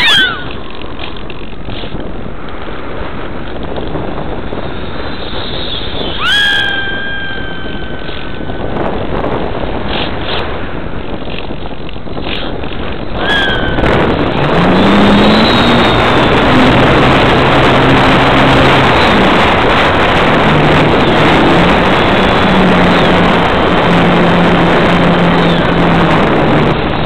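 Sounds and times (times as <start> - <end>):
air rushing past camera: 0.0 - 27.0
model plane motor and propeller: 0.0 - 27.0
low hum shifting in pitch: 6.2 - 8.7, 13.2 - 26.9.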